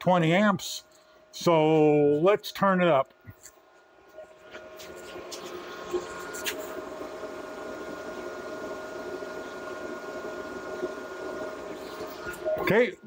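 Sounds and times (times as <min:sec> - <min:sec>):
cooling fan humming: 0:00.0 - 0:13.0.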